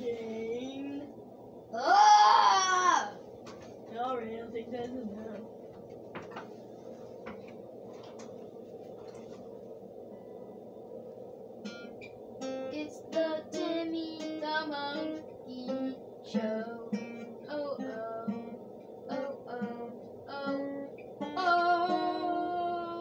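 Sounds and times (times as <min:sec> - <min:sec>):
guitar picked melody: 0:11.6 - 0:23.0.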